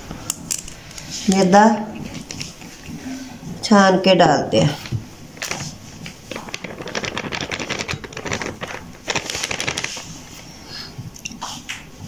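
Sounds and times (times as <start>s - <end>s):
metal sieve rattling: 5.4s - 10.1s.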